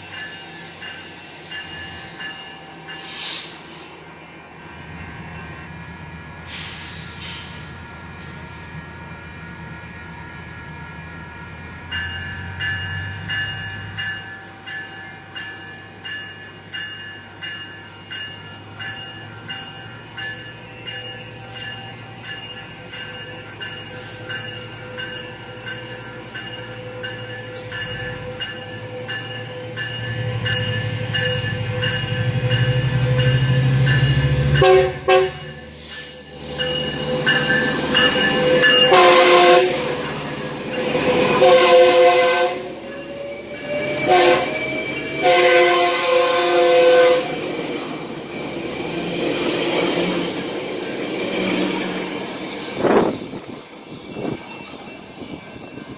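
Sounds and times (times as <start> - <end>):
train bell ringing: 0.0 - 55.9
train horn: 34.4 - 35.6, 38.8 - 40.0, 41.2 - 42.8, 44.0 - 47.4.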